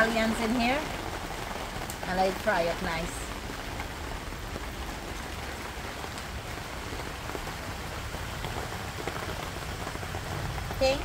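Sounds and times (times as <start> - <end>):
steady rain falling: 0.0 - 11.0.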